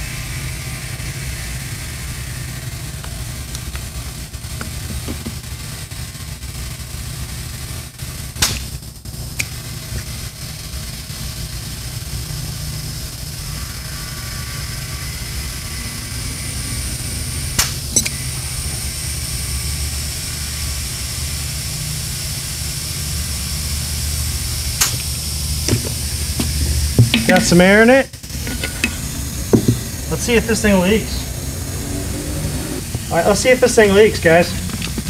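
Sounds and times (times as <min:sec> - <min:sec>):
low steady hum: 0:21.2 - 0:35.0
compressed air hissing: 0:24.3 - 0:35.0.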